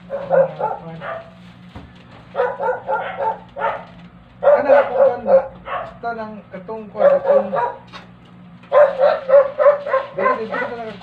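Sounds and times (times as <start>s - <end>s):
dog barking: 0.0s - 1.4s, 2.3s - 6.0s, 7.0s - 7.9s, 8.7s - 10.8s.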